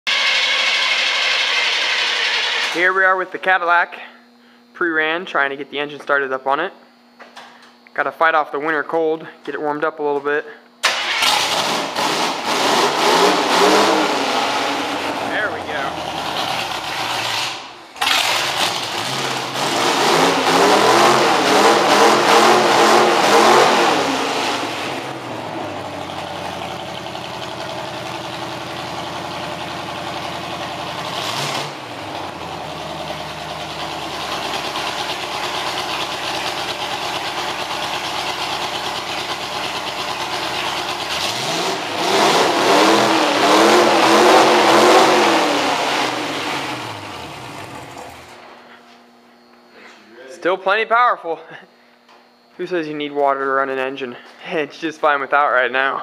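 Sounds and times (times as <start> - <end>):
v eight engine revving and idling: 11.2 - 48.3.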